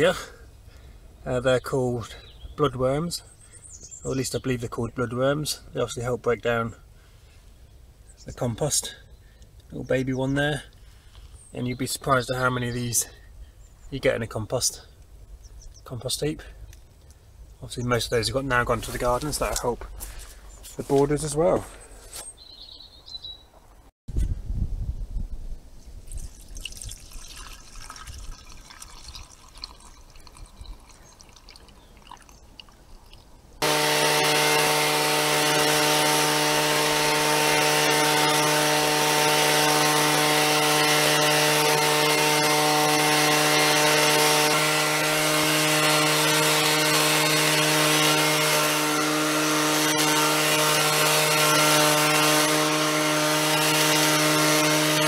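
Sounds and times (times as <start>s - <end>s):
leaf blower running: 33.6s - 55.0s.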